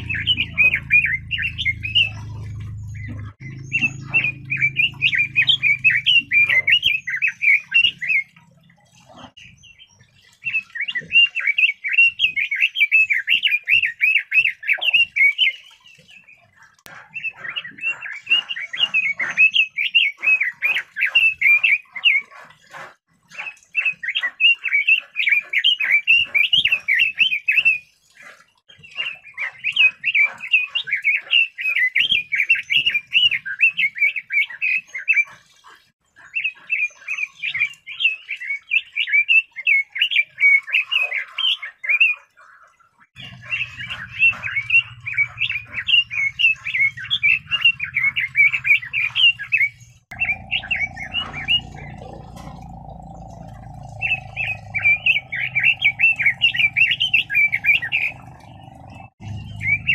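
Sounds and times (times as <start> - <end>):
bird singing high rapid notes: 0.0 - 8.4, 43.2 - 59.9.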